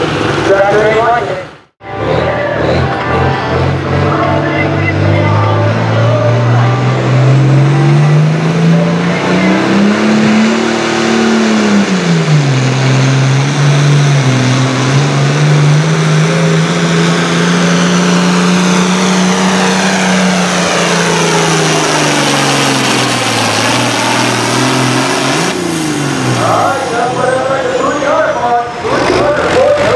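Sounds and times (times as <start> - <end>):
tractor diesel engine under load: 0.0 - 29.9.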